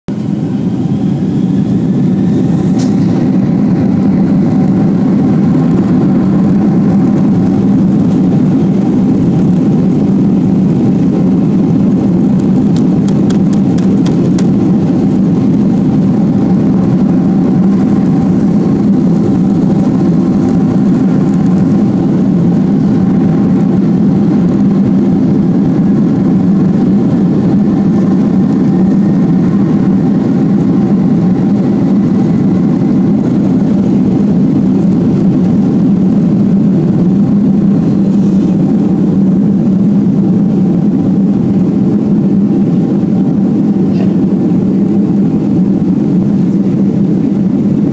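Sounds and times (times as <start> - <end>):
jet engine cabin hum: 0.1 - 47.9.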